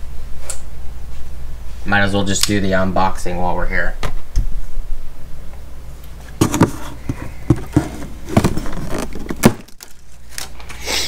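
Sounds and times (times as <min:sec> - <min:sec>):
plastic straps clicking and knocking: 0:06.4 - 0:10.8.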